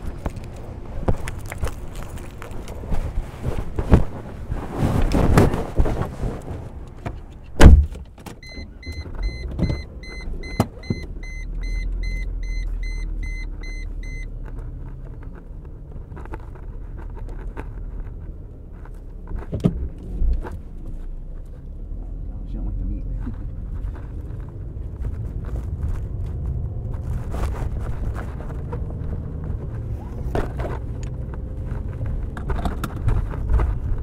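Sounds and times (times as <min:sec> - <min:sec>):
car door shutting: 0:07.0 - 0:11.1
car warning chime pinging: 0:08.4 - 0:14.3.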